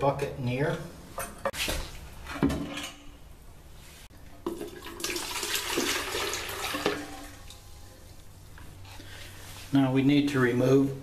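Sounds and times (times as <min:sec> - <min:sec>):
water pouring into metal can: 0:04.5 - 0:07.4.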